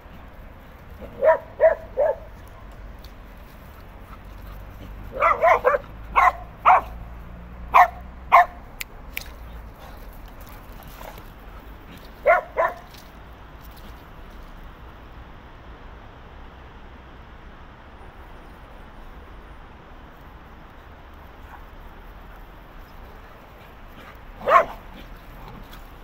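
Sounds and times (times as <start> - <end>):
dog barking: 1.0 - 2.3, 5.1 - 7.0, 7.7 - 8.6, 12.2 - 12.9, 24.4 - 25.0.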